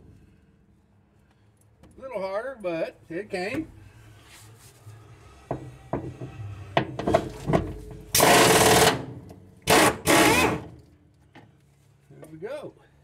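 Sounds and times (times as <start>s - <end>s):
impact wrench hammering: 5.5s - 10.7s.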